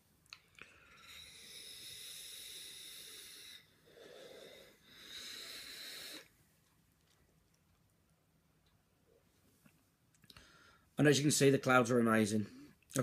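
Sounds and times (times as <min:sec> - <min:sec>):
soft breath: 0:00.5 - 0:06.4, 0:10.3 - 0:11.0
e-cigarette draw hiss: 0:01.1 - 0:06.3.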